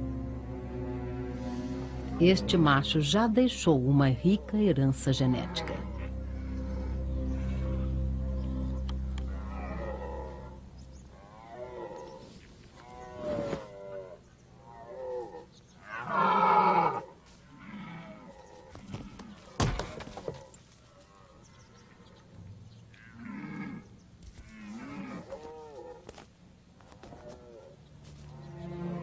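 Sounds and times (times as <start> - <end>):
deer stags roaring: 5.2 - 23.9.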